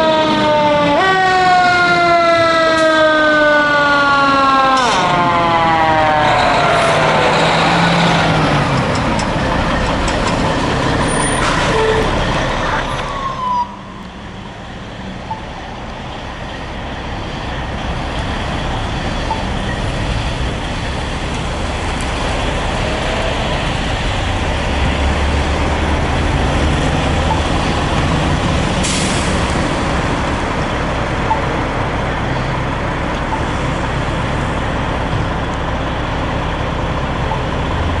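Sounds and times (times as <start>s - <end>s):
diesel engine running: 5.2s - 13.2s, 13.9s - 38.0s
air brake hiss: 28.8s - 29.5s.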